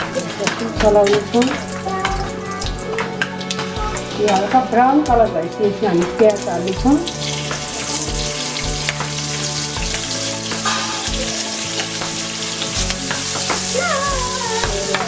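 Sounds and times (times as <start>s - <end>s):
onions sizzling in oil: 0.0s - 15.0s.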